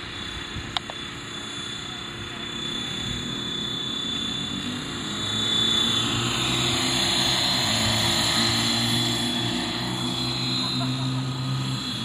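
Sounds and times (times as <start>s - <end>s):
model helicopter rotor whine: 0.0s - 12.0s.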